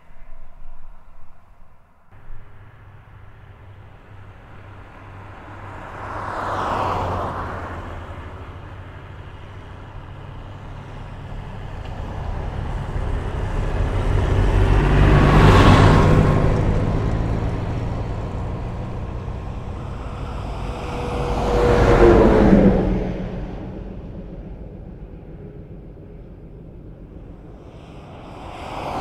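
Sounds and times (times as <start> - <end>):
vehicles passing on highway: 0.0 - 29.0
low steady hum: 16.5 - 29.0.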